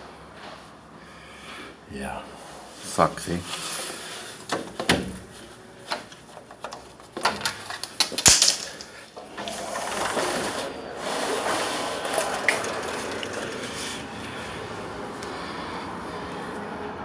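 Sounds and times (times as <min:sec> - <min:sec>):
outdoor background rush: 0:08.6 - 0:17.0
sliding door rattling in track: 0:09.2 - 0:14.2.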